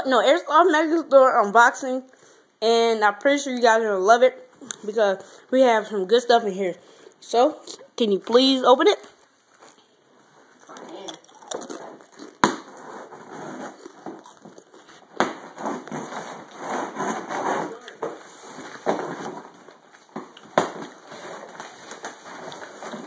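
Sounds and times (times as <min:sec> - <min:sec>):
cardboard and tape rustling: 0:10.4 - 0:23.0.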